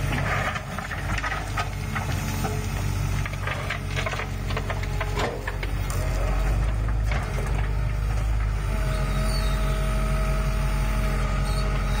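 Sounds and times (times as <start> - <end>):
diesel engine running: 0.0 - 12.0
hydraulic whine: 5.8 - 12.0.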